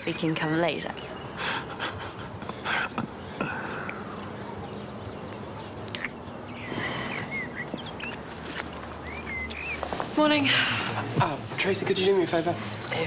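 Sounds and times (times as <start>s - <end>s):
bird chirps: 3.1s - 10.0s.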